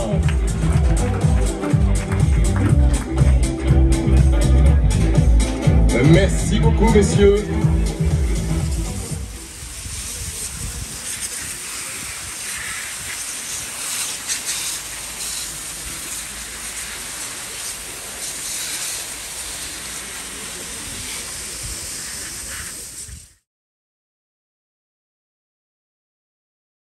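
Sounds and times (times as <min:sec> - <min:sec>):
hissing water spray from hose: 0:07.6 - 0:23.4.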